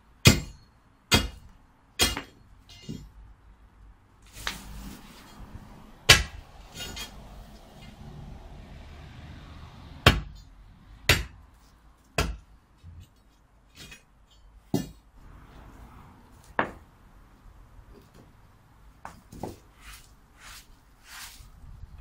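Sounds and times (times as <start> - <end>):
steel bar striking stony ground: 0.2 - 3.2, 6.1 - 8.0, 10.0 - 11.4, 12.2 - 13.0, 13.6 - 15.1.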